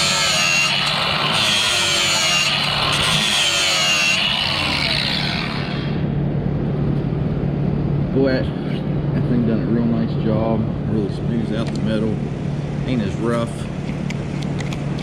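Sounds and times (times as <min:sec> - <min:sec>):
angle grinder grinding metal: 0:00.0 - 0:06.0.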